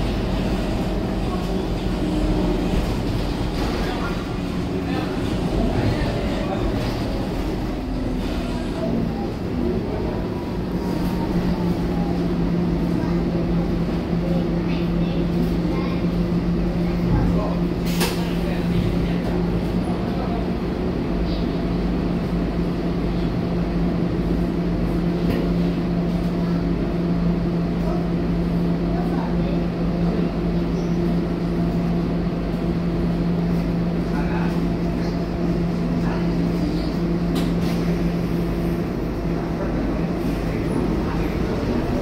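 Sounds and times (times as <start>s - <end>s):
bus diesel engine idling: 0.0s - 42.0s.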